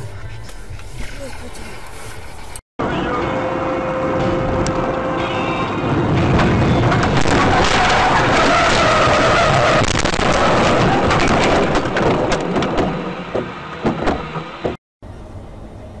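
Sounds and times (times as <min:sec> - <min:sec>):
car body scraping and banging: 0:10.6 - 0:14.8.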